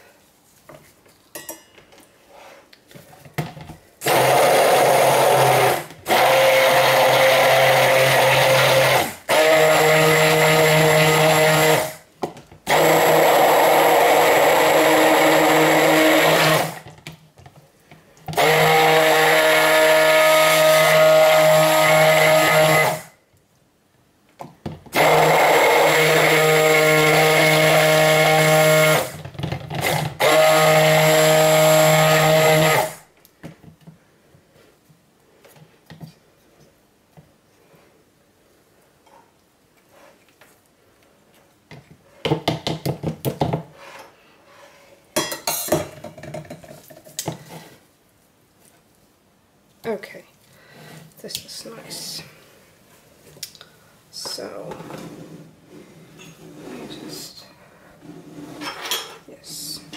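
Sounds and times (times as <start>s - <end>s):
immersion blender running: 4.0s - 12.0s, 12.7s - 16.8s, 18.4s - 23.1s, 24.9s - 29.2s, 29.8s - 33.0s.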